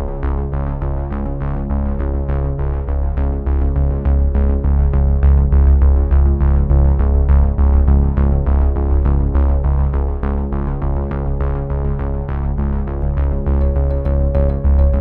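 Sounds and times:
electronic synthesizer music: 13.6 - 15.0.

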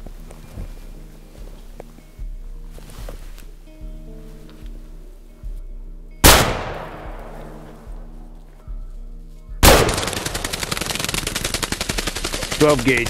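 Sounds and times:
shotgun shots: 6.2 - 7.9, 9.6 - 13.0
bird wings beating in dry leaves: 9.9 - 13.0.

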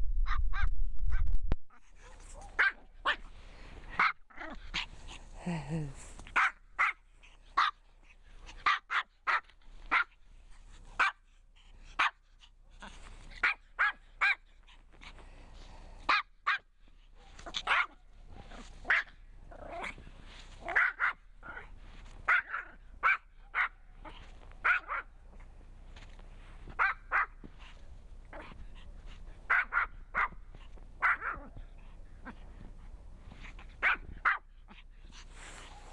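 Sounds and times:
small dog barking: 2.0 - 3.3, 3.9 - 4.9, 6.3 - 7.9, 8.5 - 10.2, 11.0 - 11.2, 11.9 - 12.2, 12.8 - 14.5, 16.0 - 20.0, 20.6 - 25.2, 26.7 - 27.7, 28.3 - 32.4, 33.4 - 34.8.

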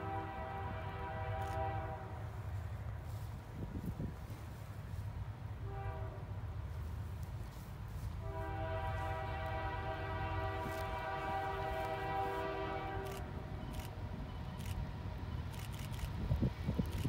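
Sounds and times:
distant locomotive horn blast: 0.0 - 2.7, 5.5 - 6.8, 8.0 - 14.6.

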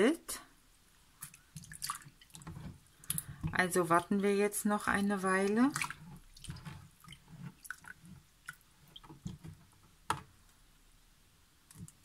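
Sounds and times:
wet fabric squishing in water: 1.1 - 9.8.

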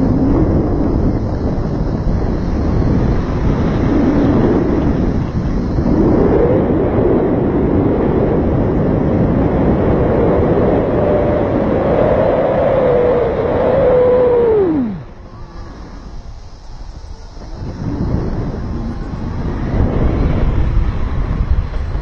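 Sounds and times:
wind buffeting microphone: 0.0 - 22.0
faint whistling tone: 10.3 - 19.7.

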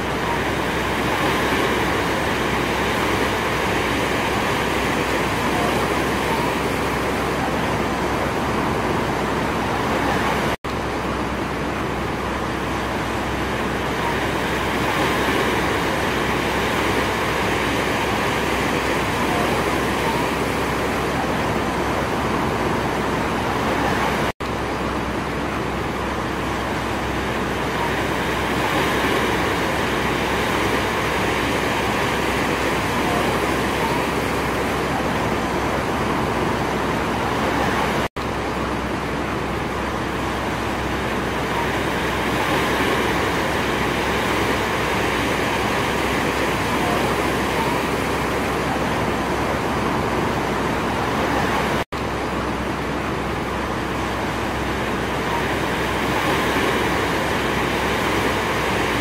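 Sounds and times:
heavy surf breaking on rocks: 39.0 - 51.9.

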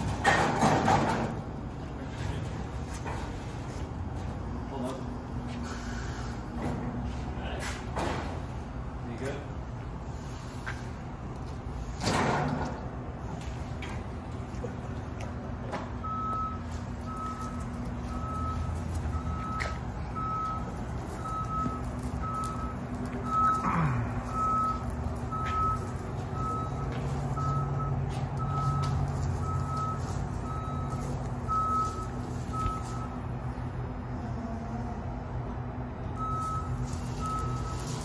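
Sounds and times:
forklift backup alarm beeping: 16.0 - 33.6, 36.1 - 38.0.

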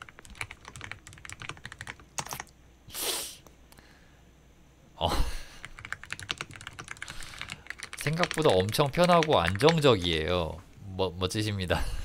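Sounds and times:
mechanical keyboard typing: 0.0 - 2.5, 5.7 - 10.1.

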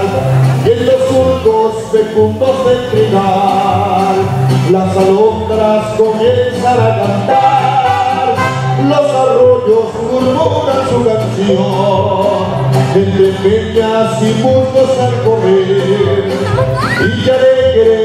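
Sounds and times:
person singing: 0.0 - 18.0
stepping bass line: 0.0 - 18.0.

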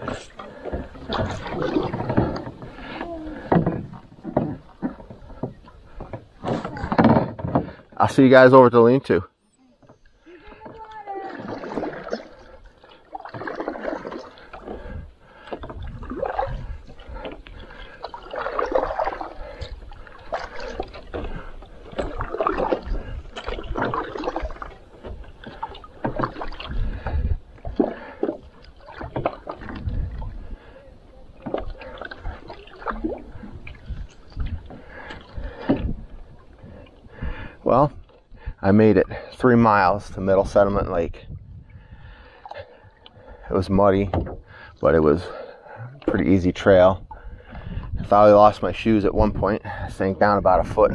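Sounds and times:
paddle strokes splashing water: 0.0 - 8.5, 9.8 - 39.4, 41.8 - 46.4.

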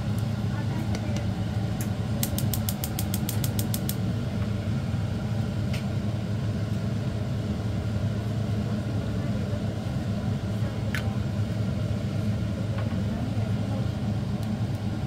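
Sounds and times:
gas hob igniter clicking: 0.9 - 4.0.

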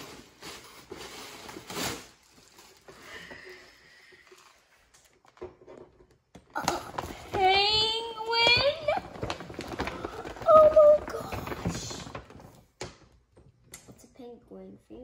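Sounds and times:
paper bag and tissue rustling: 0.0 - 5.3, 6.6 - 12.8.

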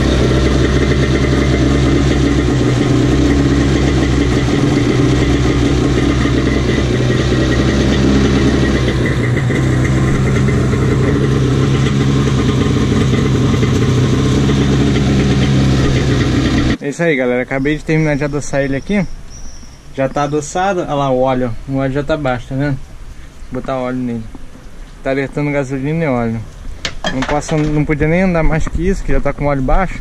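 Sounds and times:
jet ski engine idling: 0.0 - 16.8.

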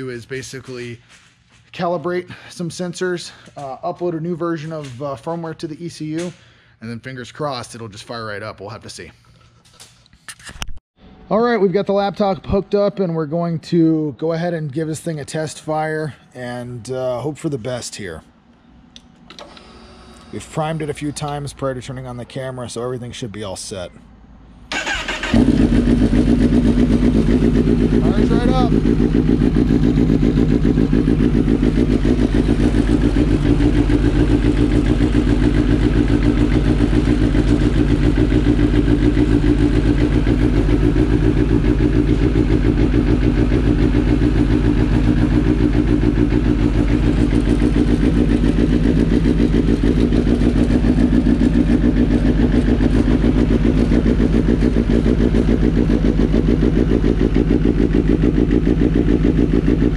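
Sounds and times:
motorcycle engine idling: 24.7 - 59.9.

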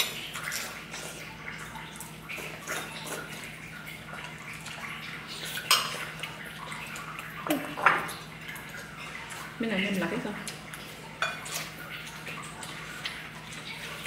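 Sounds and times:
dishes and pots clattering: 5.5 - 6.1, 7.5 - 8.2, 11.2 - 11.8.

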